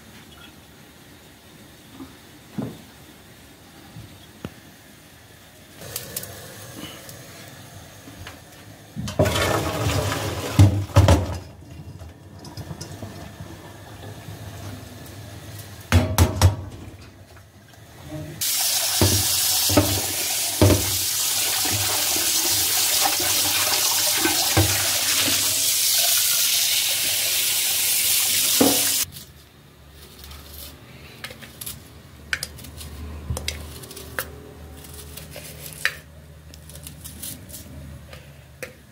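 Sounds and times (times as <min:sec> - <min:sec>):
pot knocking while rinsed: 0:15.9 - 0:16.8, 0:19.0 - 0:21.0, 0:28.6 - 0:29.0.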